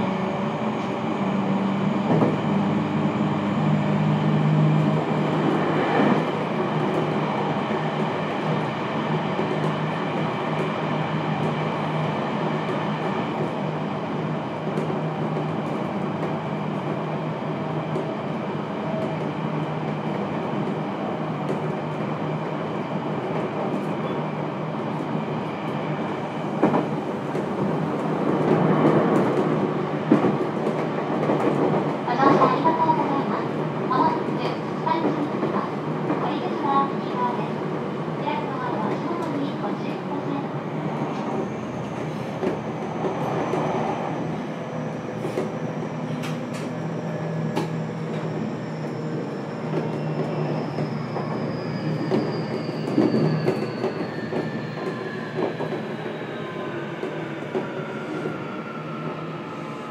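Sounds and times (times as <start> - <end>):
train motor and wheel drone: 0.0 - 59.9
rail-joint clacks: 45.2 - 46.8.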